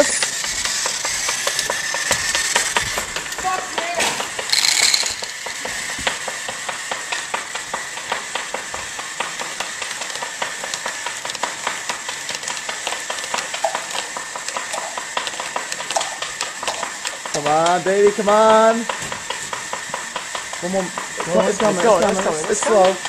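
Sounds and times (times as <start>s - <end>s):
machine parts clicking and clattering: 4.0s - 5.6s.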